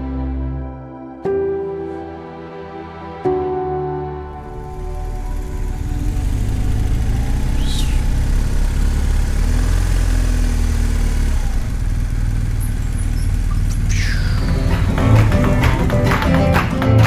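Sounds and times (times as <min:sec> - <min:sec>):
motorcycle engine rumbling: 0:04.3 - 0:16.5.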